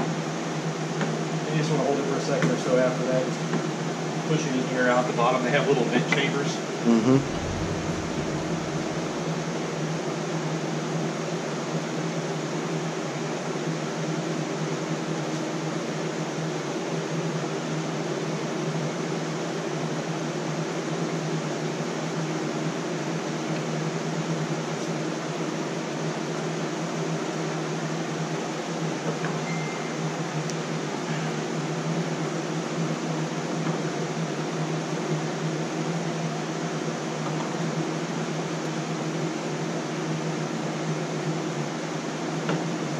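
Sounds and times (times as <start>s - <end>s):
low hum: 6.9s - 11.0s
fan whirring: 6.9s - 11.1s.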